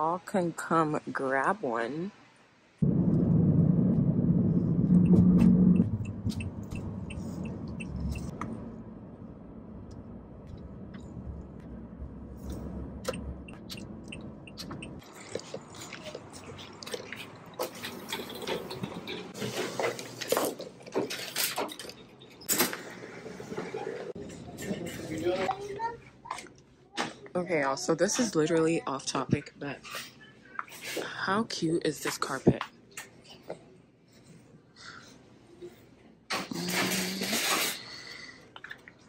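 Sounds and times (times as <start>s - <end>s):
car road and engine rumble: 2.8s - 19.4s.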